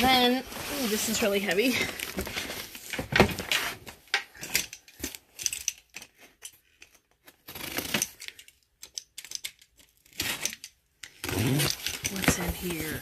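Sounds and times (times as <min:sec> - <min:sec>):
box cutter cutting packing tape: 0:07.4 - 0:08.2, 0:10.0 - 0:12.5
cardboard box being handled: 0:12.1 - 0:13.0.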